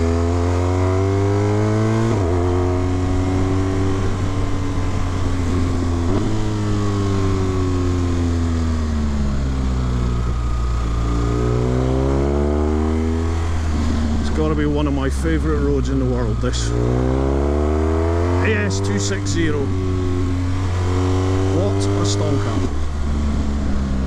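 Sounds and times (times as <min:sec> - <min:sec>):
motorcycle engine revving: 0:00.0 - 0:24.0
wind noise: 0:02.0 - 0:07.7.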